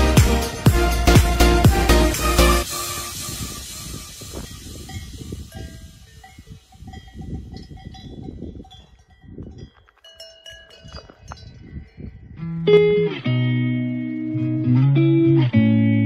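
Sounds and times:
wind rumble on microphone: 3.0 - 12.6
cowbells clinking: 4.4 - 12.4.

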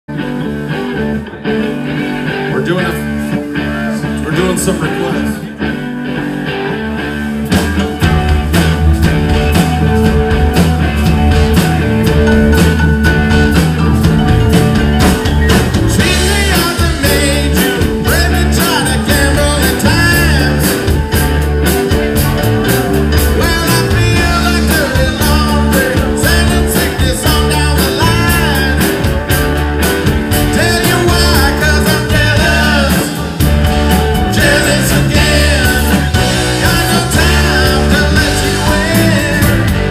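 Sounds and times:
electric guitars: 0.1 - 39.9
steady drum beat: 7.4 - 39.9
lead singer singing: 15.9 - 21.0, 23.1 - 29.3, 30.3 - 39.9.

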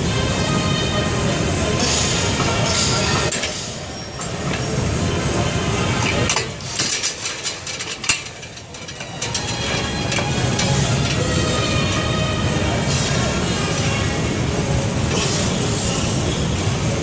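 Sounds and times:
gym background music: 0.0 - 17.0.

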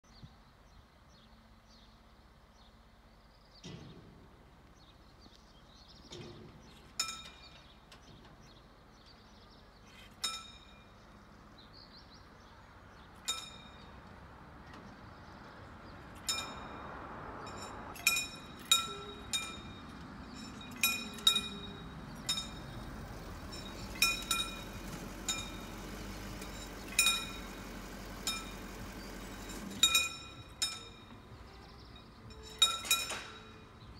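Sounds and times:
warning bell dings: 16.2 - 28.9.

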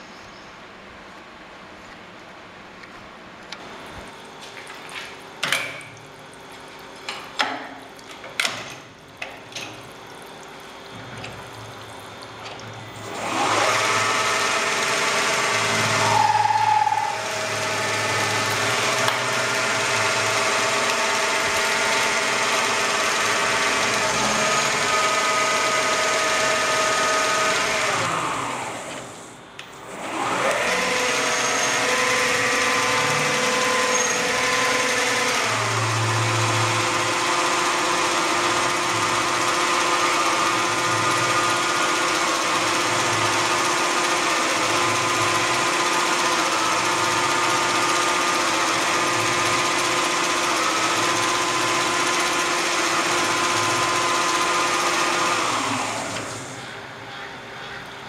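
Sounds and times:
lathe spindle motor whine: 13.0 - 58.0.

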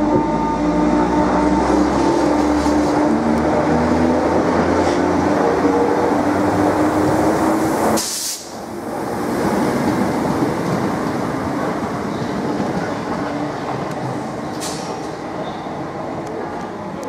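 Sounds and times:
train wheels and motors rumbling: 0.0 - 17.0
high hiss: 7.8 - 8.7.

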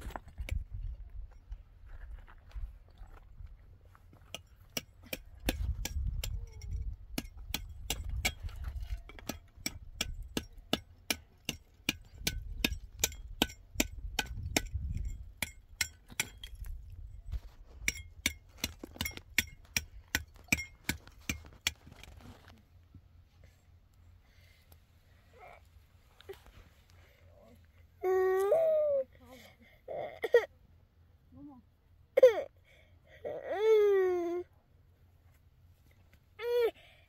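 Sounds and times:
hammer striking concrete block: 4.3 - 8.4, 9.1 - 16.6, 17.8 - 21.8.

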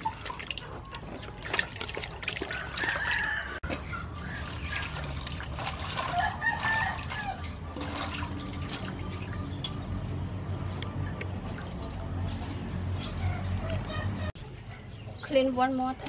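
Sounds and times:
water splashing and dripping: 0.0 - 12.4
rooster crowing: 2.5 - 3.7, 6.0 - 7.5.

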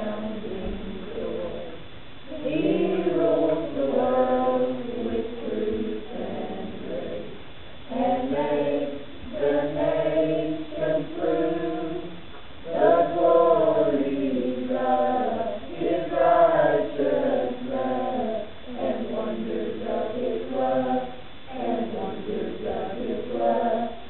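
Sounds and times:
youth choir singing: 0.0 - 24.0.

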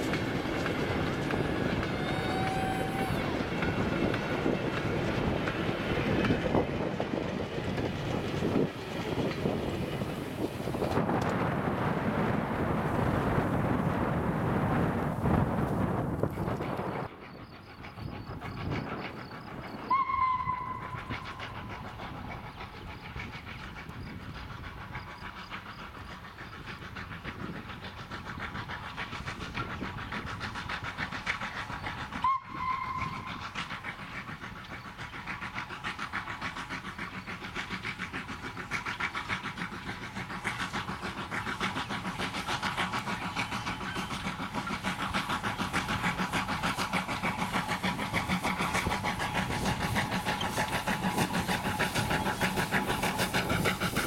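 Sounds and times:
steam locomotive exhaust beats: 0.0 - 54.0
train running on rails: 0.0 - 54.0
steam locomotive whistle: 1.4 - 3.8, 19.9 - 21.6, 32.2 - 33.4.

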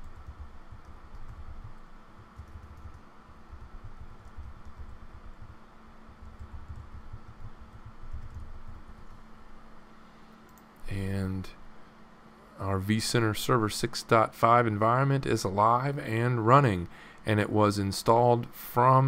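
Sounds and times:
computer keyboard typing: 0.0 - 9.2
faint steady hum: 0.0 - 19.0.

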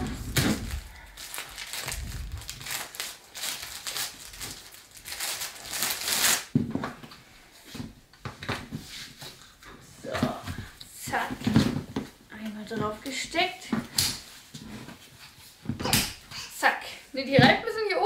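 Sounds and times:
plastic wrapping crinkling: 0.0 - 6.6.

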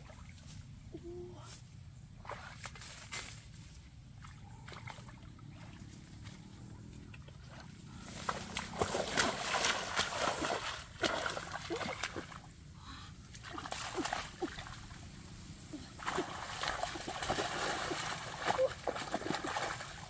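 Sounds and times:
hands splashing in water: 16.0 - 20.0.

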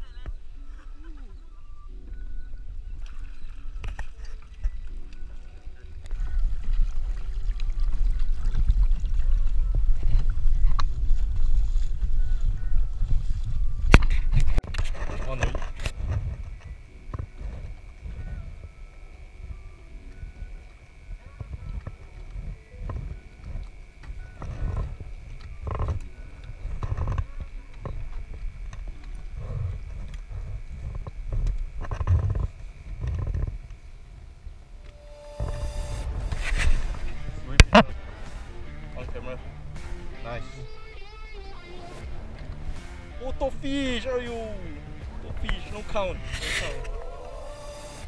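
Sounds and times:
faint high whine: 0.0 - 48.0
wind rumble on microphone: 1.3 - 34.8, 35.4 - 38.2
water splashing along a hull: 2.0 - 12.3
gusty wind rumble: 34.7 - 40.2.

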